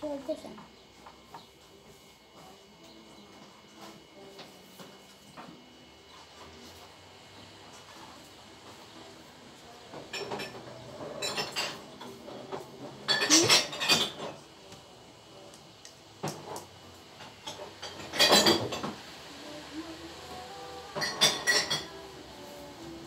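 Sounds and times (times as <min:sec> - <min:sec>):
paint pots clinking on a table: 0:10.0 - 0:14.4, 0:17.2 - 0:19.0, 0:20.9 - 0:22.0.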